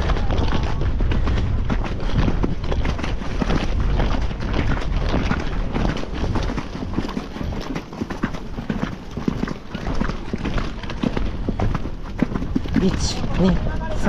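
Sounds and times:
steady low rumble: 0:00.0 - 0:06.4
horse hoofbeats: 0:00.0 - 0:14.0.

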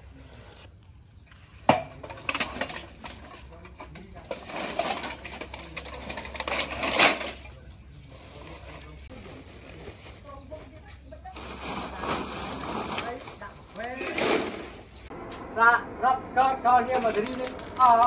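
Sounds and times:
scrap steel clinking and clattering: 0:01.8 - 0:07.8.

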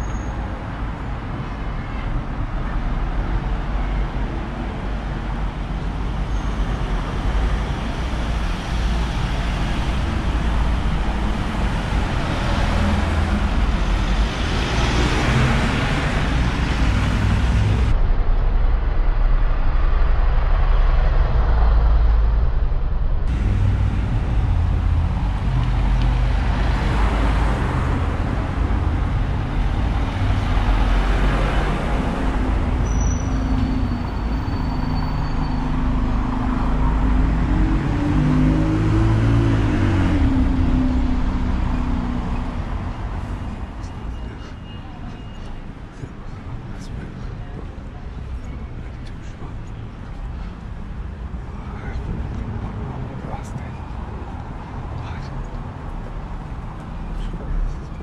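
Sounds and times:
vehicles passing: 0:00.0 - 0:58.0
constant low rumble: 0:16.4 - 0:31.1, 0:45.2 - 0:58.0.

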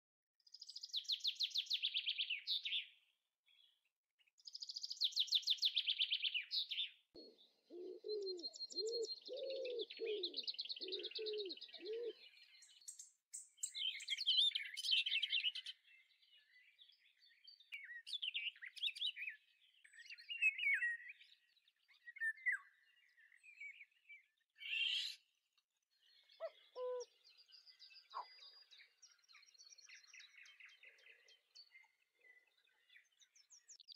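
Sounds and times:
birds trilling high chirps: 0:04.4 - 0:25.3, 0:25.9 - 0:33.9
bird chirps and whistles: 0:24.6 - 0:25.2.

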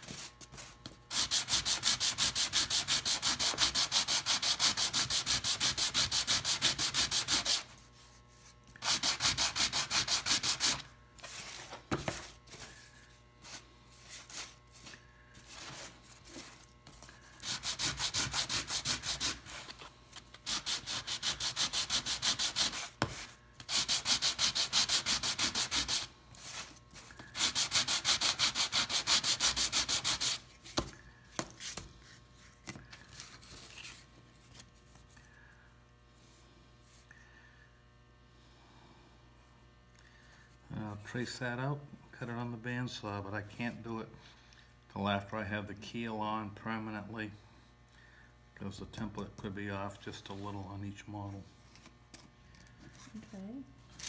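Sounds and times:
sandpaper rubbing on wood: 0:00.0 - 0:12.3, 0:17.4 - 0:19.8, 0:20.4 - 0:30.4.

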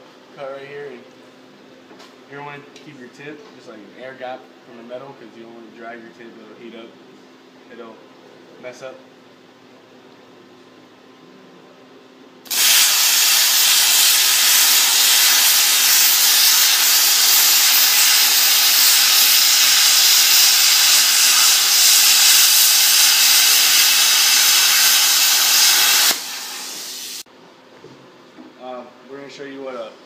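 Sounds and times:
air hissing through torch: 0:12.5 - 0:27.3
plasma cutter arc hissing: 0:12.5 - 0:27.3.

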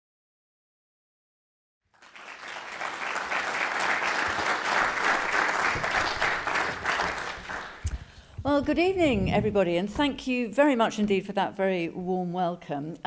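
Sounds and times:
audience applauding: 0:01.9 - 0:08.1.

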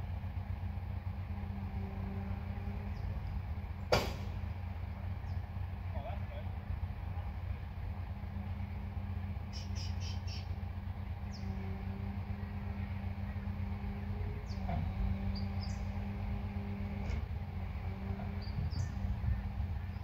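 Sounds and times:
truck engine running: 0:00.0 - 0:20.0
high bird chirps: 0:09.5 - 0:10.6.

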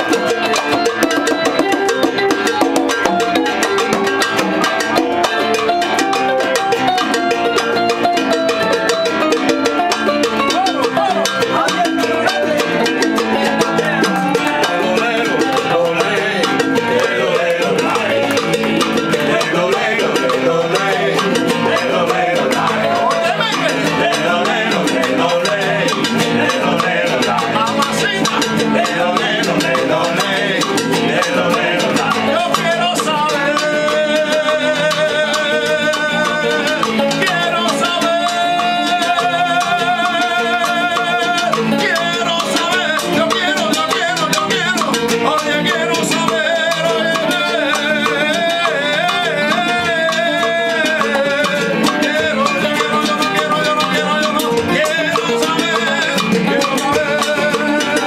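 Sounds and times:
bongos and congas: 0:00.0 - 0:58.0
man singing: 0:00.0 - 0:58.0
strummed acoustic guitar: 0:00.0 - 0:58.0.

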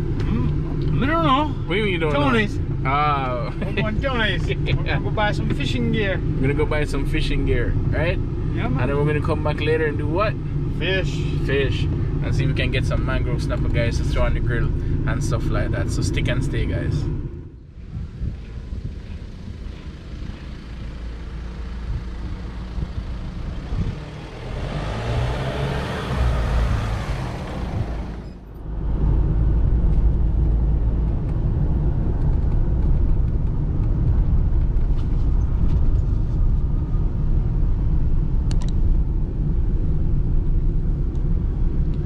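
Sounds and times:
road and engine rumble in car: 0:00.0 - 0:42.0
car driving past: 0:19.6 - 0:30.6.

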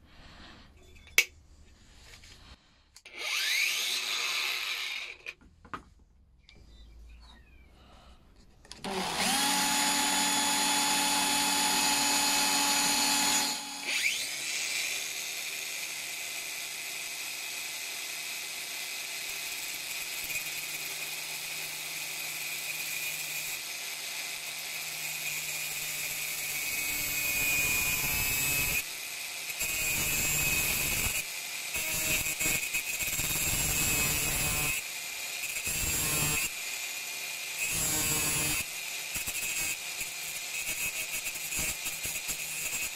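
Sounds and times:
power tool motors whining: 0:03.0 - 0:05.4, 0:08.7 - 0:15.4.

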